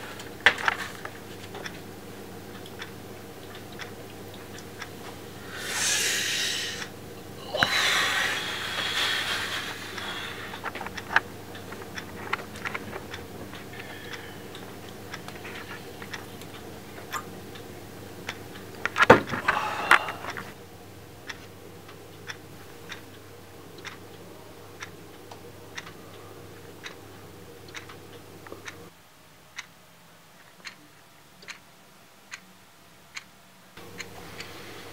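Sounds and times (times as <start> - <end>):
low hum: 0.0 - 28.9
clock ticking: 0.7 - 5.3, 9.8 - 19.4, 21.2 - 24.2, 24.8 - 27.0, 27.6 - 28.9, 30.6 - 30.8, 31.4 - 31.6, 33.1 - 34.5.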